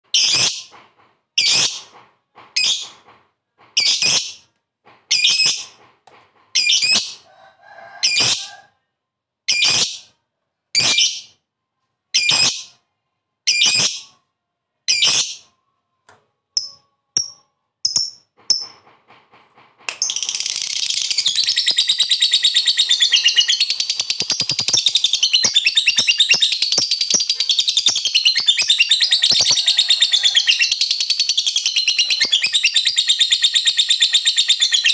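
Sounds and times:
bird chirps: 20.0s - 34.9s.

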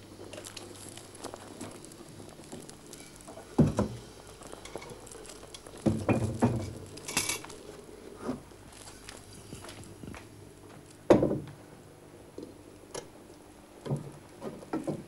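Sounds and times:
pots knocking and clinking: 3.0s - 4.0s, 5.8s - 7.5s.

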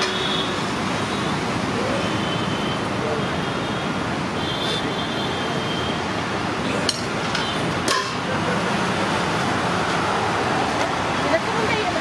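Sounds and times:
roadside traffic: 0.0s - 12.0s
metal containers clinking: 6.9s - 8.4s.

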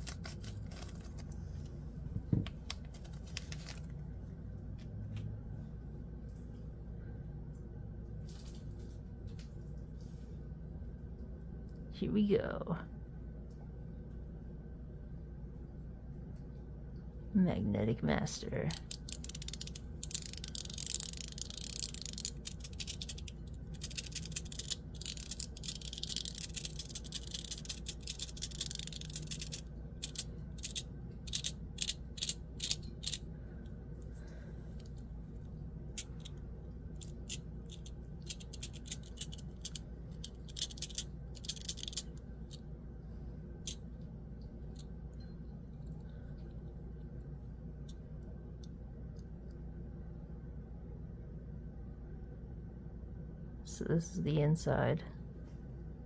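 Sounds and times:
packaging crinkling and rustling: 0.0s - 1.4s, 2.5s - 4.0s
faint steady hum: 0.0s - 56.0s.

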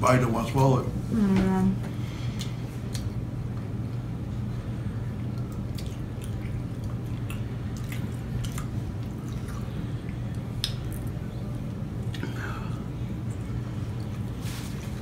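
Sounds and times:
steady low hum: 0.0s - 15.0s
wet mouth clicks and smacks: 2.4s - 3.1s, 5.3s - 11.1s
chewing food: 5.2s - 11.2s.

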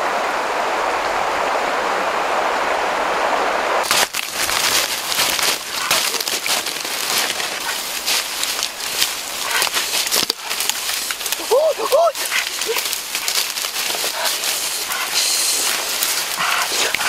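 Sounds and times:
feet crunching through dry leaves: 3.8s - 17.0s.

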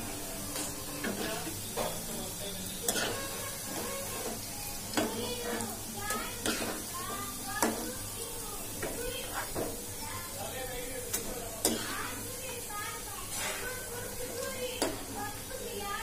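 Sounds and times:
deep-frying sizzle: 0.0s - 16.0s
metal spoon knocking on pan: 7.5s - 7.9s, 8.8s - 9.8s.

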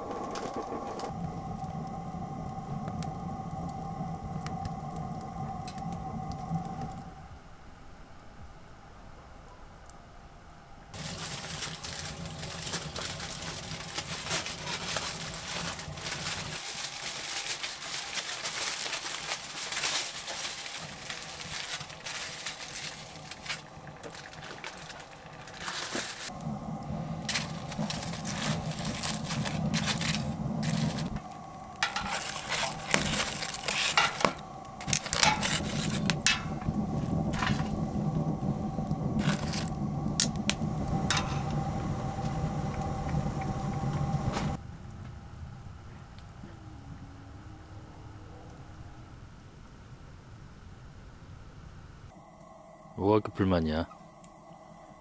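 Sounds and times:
aluminium foil crinkling: 11.0s - 41.5s.

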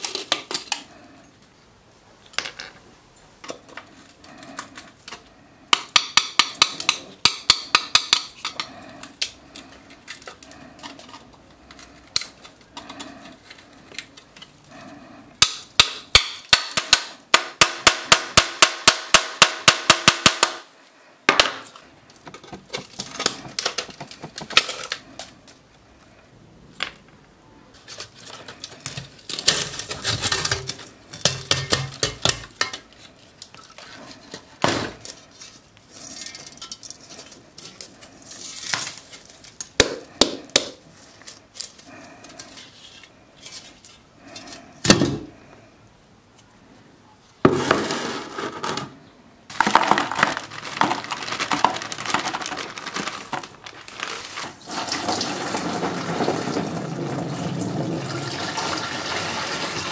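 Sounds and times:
rusted metal scraping and clinking: 27.9s - 39.6s.

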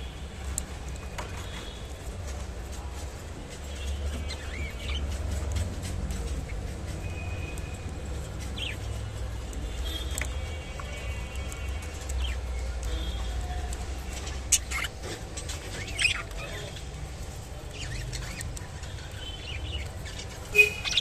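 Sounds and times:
small clicks of birds eating: 0.0s - 21.0s
budgerigars chirping: 4.1s - 5.6s, 14.2s - 16.8s, 17.7s - 21.0s.

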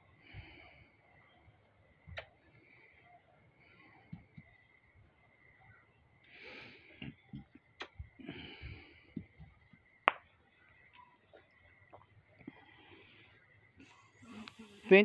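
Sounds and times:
breathy exhales: 8.2s - 9.4s.

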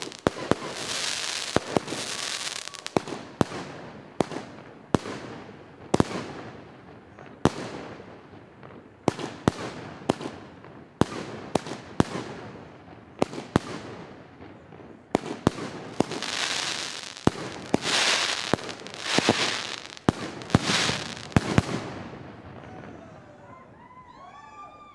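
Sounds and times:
firework hiss: 0.0s - 2.9s, 15.7s - 21.9s
firework bangs: 0.0s - 6.5s, 13.2s - 22.9s.

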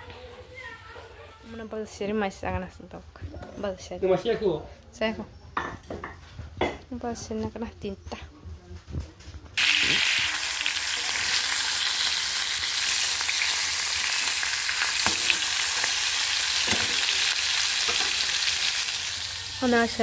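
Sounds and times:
fish sizzling in hot oil: 9.6s - 20.0s.

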